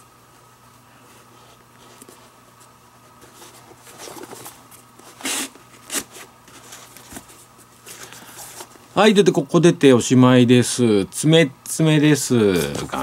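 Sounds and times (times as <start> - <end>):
leather rustling and rubbing: 1.3 - 7.8.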